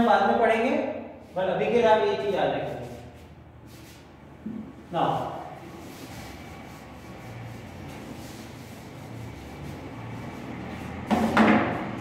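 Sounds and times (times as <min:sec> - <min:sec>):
eraser rubbing on whiteboard: 0:05.5 - 0:11.3.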